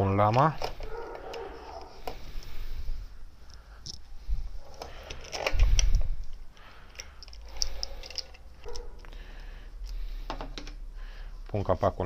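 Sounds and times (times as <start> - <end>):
metallic clicks and rattles: 4.7 - 9.1.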